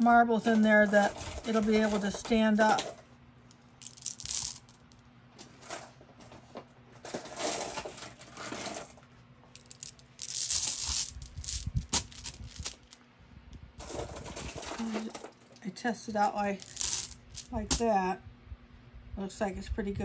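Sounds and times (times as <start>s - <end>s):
glass marbles clinking: 3.8s - 4.7s, 9.6s - 12.9s, 16.6s - 17.5s.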